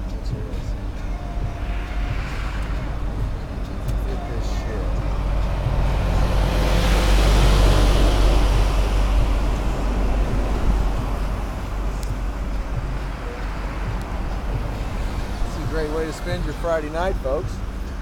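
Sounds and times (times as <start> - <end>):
truck passing close: 0.0 - 18.0.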